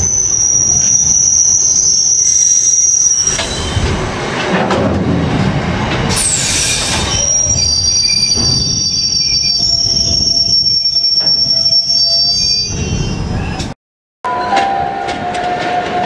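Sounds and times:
train wheels squealing on rails: 0.0 - 4.0, 6.1 - 13.8.

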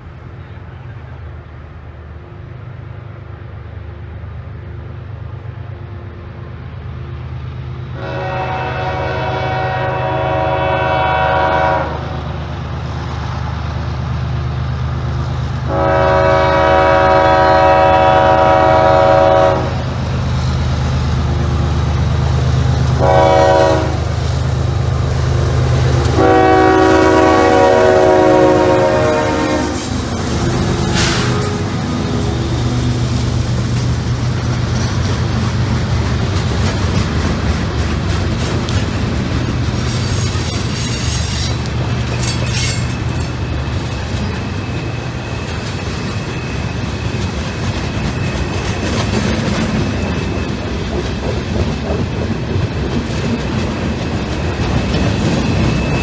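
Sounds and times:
diesel locomotive engine rumble: 0.0 - 56.0
locomotive air horn blasts: 8.0 - 12.3, 15.7 - 19.9, 23.0 - 24.1, 26.1 - 29.9.

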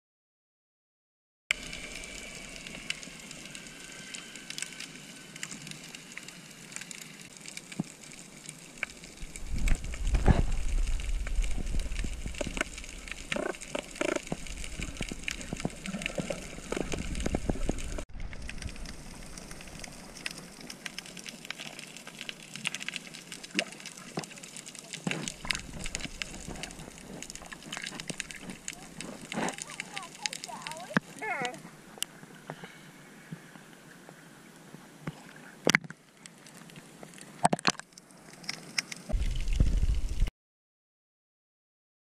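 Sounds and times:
underwater crackling: 1.5 - 32.7
water rumbling and sloshing: 1.5 - 40.3.

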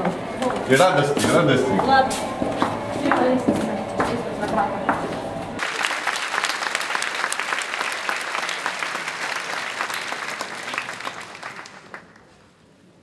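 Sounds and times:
audience applauding: 5.6 - 12.4.

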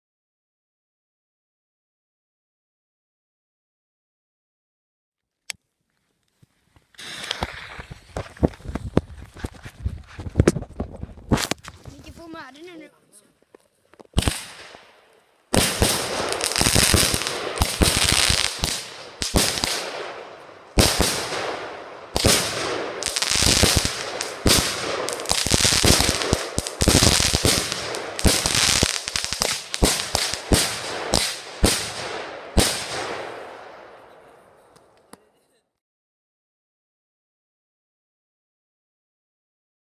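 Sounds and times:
firework launches and pops: 6.9 - 12.2, 14.0 - 20.0, 20.7 - 33.2.

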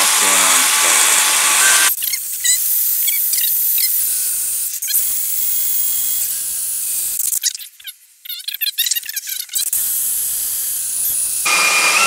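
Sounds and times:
hole saw cutting plastic: 0.0 - 2.6, 11.1 - 12.0.

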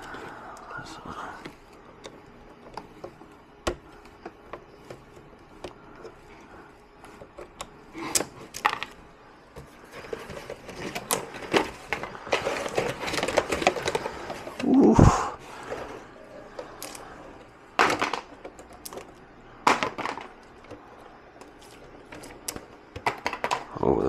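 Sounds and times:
cardboard scraping and rustling: 9.5 - 14.8.

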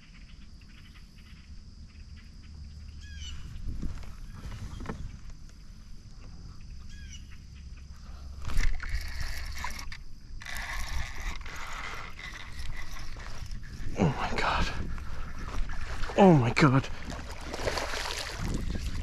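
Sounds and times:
faint bird chirps: 0.0 - 8.4
insect trilling: 0.0 - 19.0
fishing reel whirring: 8.3 - 13.9.

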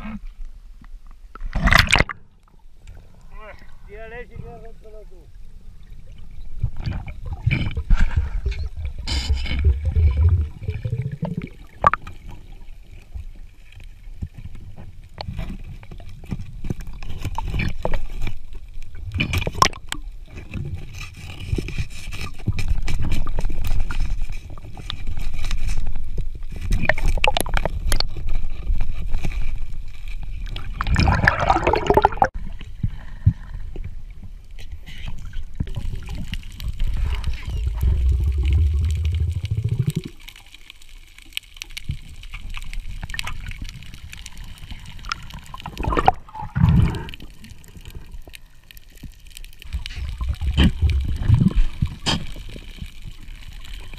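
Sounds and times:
water gurgling and bubbling: 6.0 - 12.7, 26.7 - 28.2, 30.5 - 32.4, 35.3 - 40.5, 42.9 - 48.0, 49.6 - 53.9
knocks and scrapes: 6.7 - 10.4, 20.3 - 30.6.

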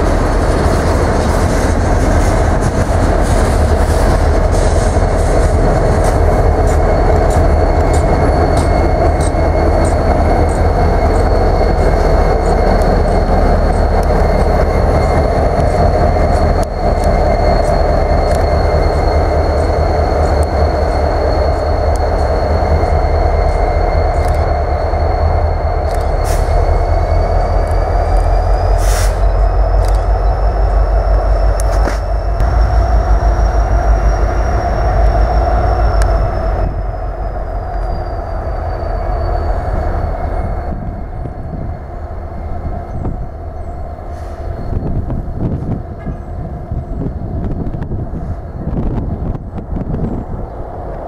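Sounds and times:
wheel clicks and clanks on rail: 0.0 - 38.1
train rumbling by: 0.0 - 51.0
high wheel squeal: 1.7 - 47.4.

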